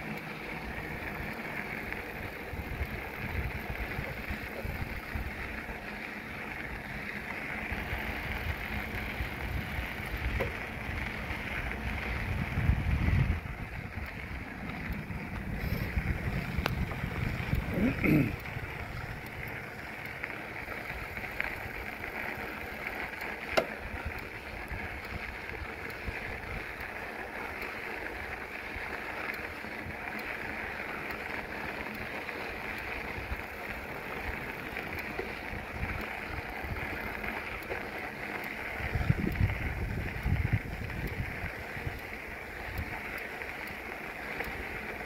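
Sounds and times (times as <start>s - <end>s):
wind rushing over microphone: 2.5s - 5.4s, 7.8s - 19.3s, 38.8s - 42.0s.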